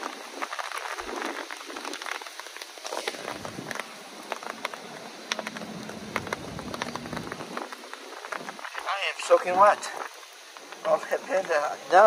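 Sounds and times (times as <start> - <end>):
rain dripping onto surfaces: 0.0 - 12.0
low rumble: 3.2 - 8.8.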